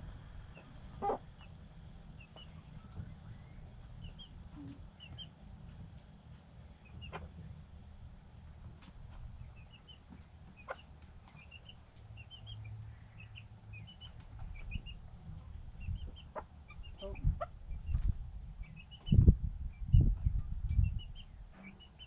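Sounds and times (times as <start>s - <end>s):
chick peeping: 0.5s - 5.4s, 6.8s - 7.4s, 9.3s - 15.0s, 15.8s - 22.0s.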